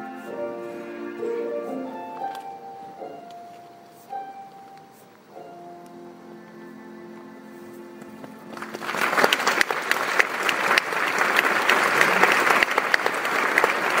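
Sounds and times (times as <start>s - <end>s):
audience applause: 8.3s - 14.0s.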